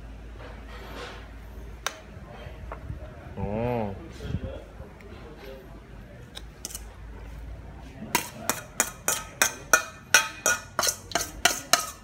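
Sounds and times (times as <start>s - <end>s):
metal spoon clinking on metal bowl: 8.2s - 12.0s.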